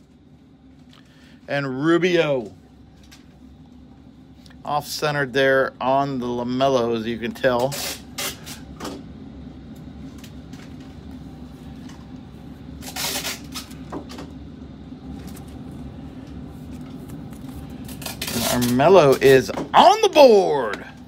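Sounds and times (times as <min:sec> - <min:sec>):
low hum: 0:08.1 - 0:21.0
cards rustling: 0:16.7 - 0:19.5.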